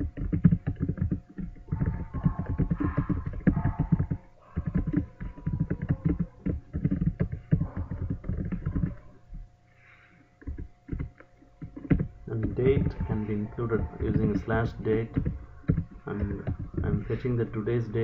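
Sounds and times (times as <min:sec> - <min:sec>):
typing on a keyboard: 0:00.0 - 0:09.1, 0:10.4 - 0:18.0.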